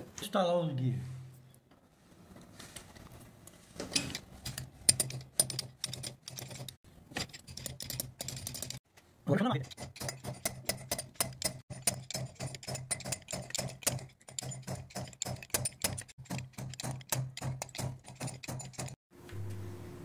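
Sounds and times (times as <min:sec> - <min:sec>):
hammer tapping steel: 0:09.6 - 0:19.0.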